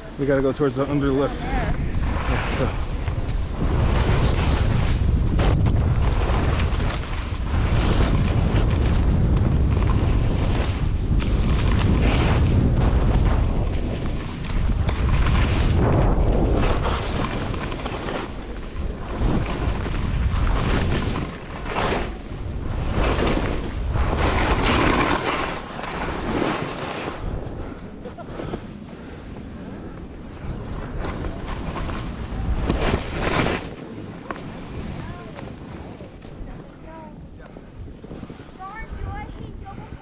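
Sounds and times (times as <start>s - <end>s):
skis scraping snow: 0.0s - 40.0s
wind buffeting microphone: 0.0s - 40.0s.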